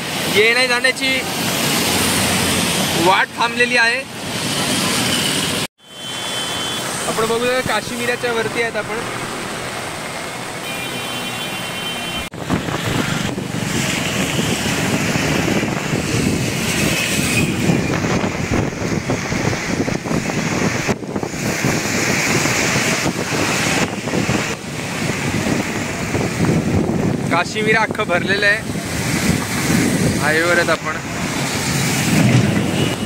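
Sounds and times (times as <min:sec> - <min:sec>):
traffic on wet road: 0:00.0 - 0:33.0
wind buffeting microphone: 0:12.3 - 0:33.0.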